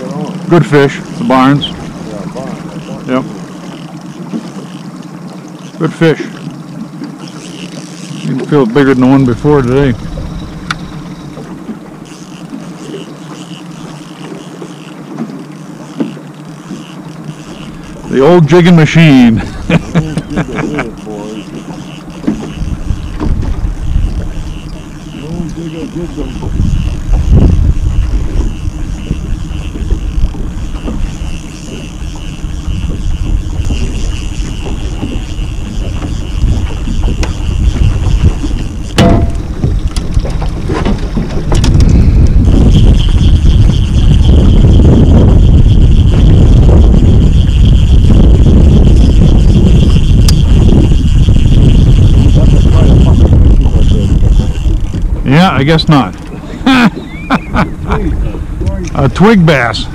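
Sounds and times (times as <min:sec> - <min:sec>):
outboard motor humming: 0:00.0 - 0:59.9
wind buffeting microphone: 0:08.2 - 0:12.8, 0:16.5 - 0:59.9
faint high chirp: 0:57.0 - 0:57.8.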